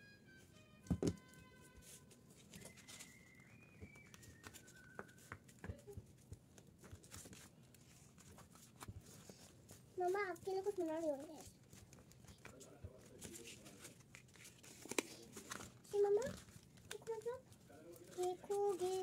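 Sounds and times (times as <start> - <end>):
paper being folded: 1.7 - 19.0.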